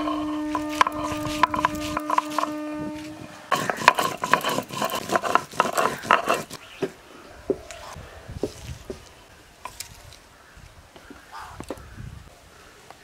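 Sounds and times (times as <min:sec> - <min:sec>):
stone grinding on stone slab: 0:00.0 - 0:06.6.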